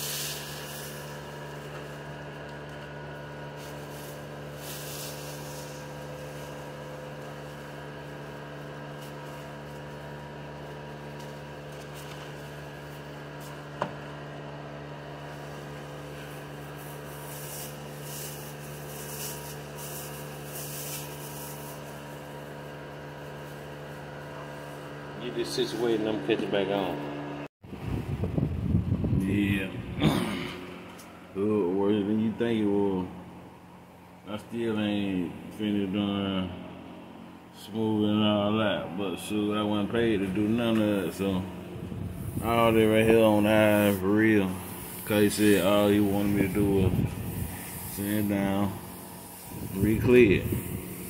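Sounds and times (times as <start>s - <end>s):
electric fan humming: 0.0s - 51.0s
sandpaper rubbing on metal: 16.7s - 22.1s.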